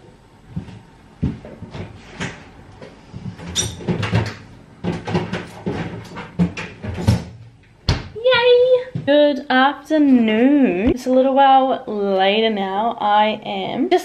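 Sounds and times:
fridge door and containers clunking: 0:03.2 - 0:08.2.

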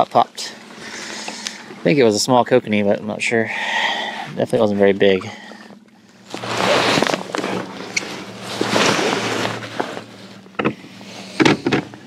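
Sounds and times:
electric trolling motor humming: 0:05.0 - 0:12.0.

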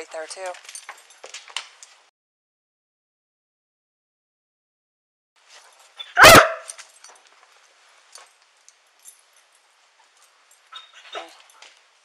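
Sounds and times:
faint rustling: 0:05.4 - 0:12.0
dog barking: 0:06.0 - 0:06.8, 0:10.8 - 0:11.4.

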